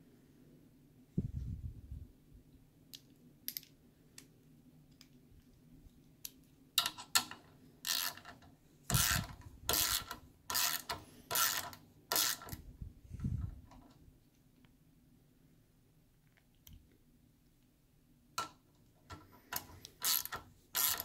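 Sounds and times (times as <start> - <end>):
socket clicking onto ratchet: 6.8 - 12.6, 19.1 - 21.0
ratchet buzzing: 7.8 - 8.3, 8.9 - 12.6, 19.5 - 21.0.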